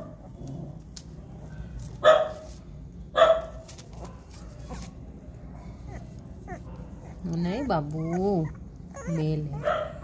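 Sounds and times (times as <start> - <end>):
puppy yelping: 5.8 - 10.0.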